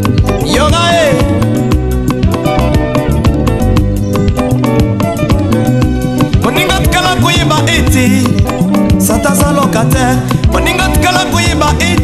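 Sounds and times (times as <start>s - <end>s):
band playing drums and bass: 0.0s - 12.0s
person singing: 0.2s - 1.7s, 6.2s - 12.0s.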